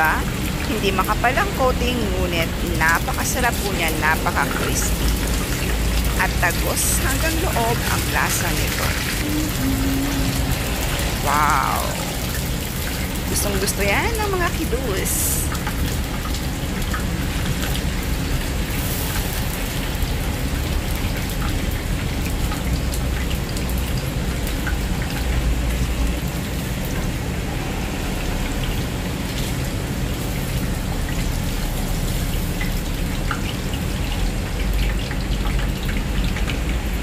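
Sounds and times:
chicken deep-frying in oil: 0:00.0 - 0:37.0.

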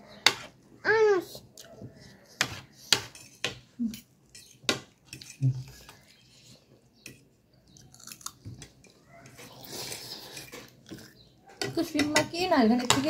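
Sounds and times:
cutlery clinking on a plate: 0:02.4 - 0:06.0
chewing: 0:07.6 - 0:11.3.

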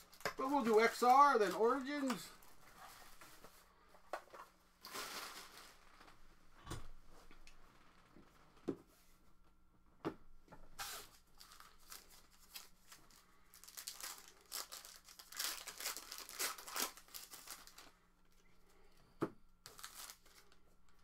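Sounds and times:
plastic tearing and crinkling: 0:04.8 - 0:06.1, 0:10.8 - 0:17.9, 0:19.6 - 0:21.0.

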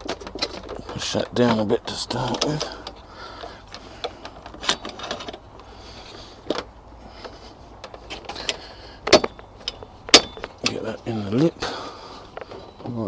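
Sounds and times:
metallic clicks and knocks: 0:00.0 - 0:05.4, 0:07.8 - 0:10.8.

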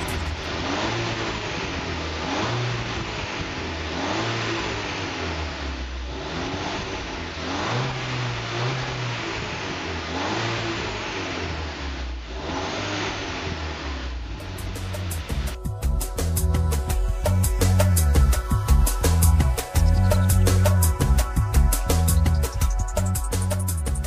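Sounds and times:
low idle note: 0:00.0 - 0:03.9, 0:14.0 - 0:24.0
car engine revving: 0:00.0 - 0:24.0.

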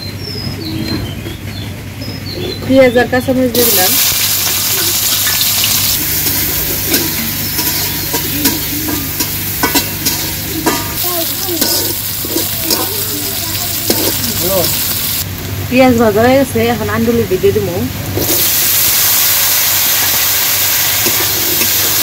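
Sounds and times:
onions sizzling in hot oil: 0:03.5 - 0:15.4, 0:18.0 - 0:22.0
metal spatula scraping pan: 0:04.4 - 0:13.0, 0:13.8 - 0:14.8.

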